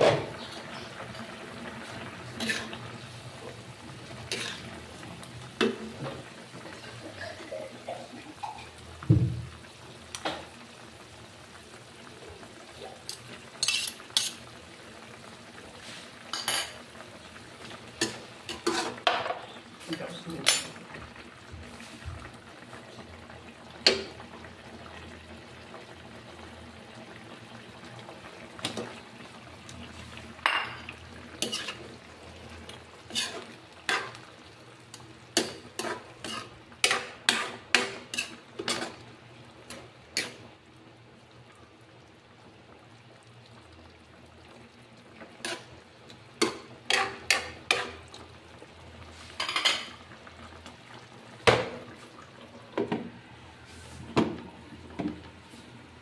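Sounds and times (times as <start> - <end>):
metal spatula scraping a wok: 2.4 - 2.7, 4.3 - 4.7, 13.6 - 14.4, 31.4 - 31.8, 33.1 - 34.2, 35.8 - 39.0.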